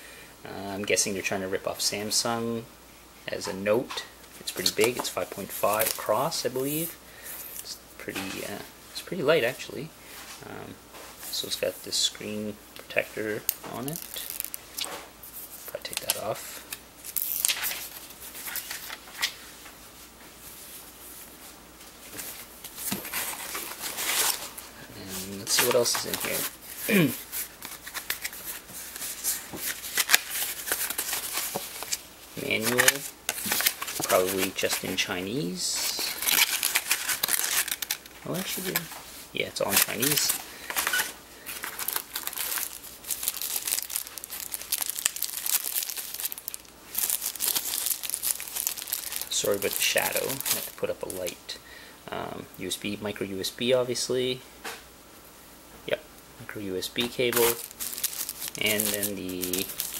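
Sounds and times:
plastic wrapping crinkling: 0:04.5 - 0:06.9, 0:12.9 - 0:19.4, 0:22.0 - 0:51.4, 0:56.8 - 0:59.9
packaging rustle: 0:04.6 - 0:06.9, 0:13.4 - 0:16.4, 0:22.1 - 0:51.4, 0:56.9 - 0:59.9.

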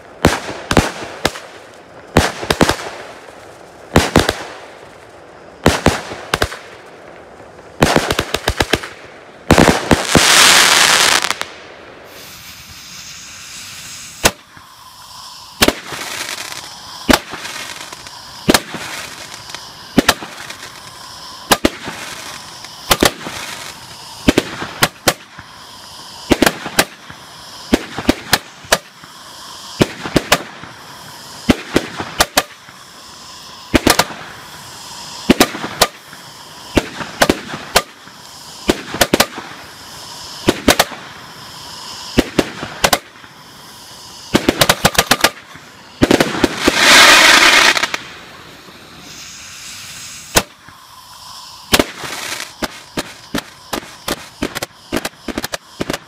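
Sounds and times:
firework hiss: 0:00.0 - 0:56.0
firework reports: 0:00.0 - 0:56.0.

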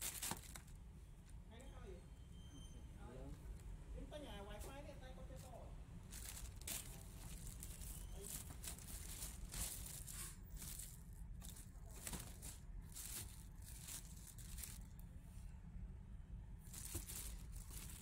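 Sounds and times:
plastic bag crinkling: 0:00.0 - 0:00.8, 0:06.1 - 0:15.0, 0:16.6 - 0:18.0.

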